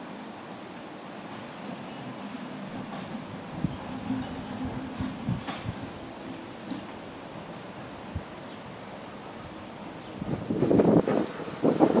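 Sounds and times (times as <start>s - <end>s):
electric tram running on track: 0.0s - 12.0s
wind buffeting microphone: 2.7s - 12.0s.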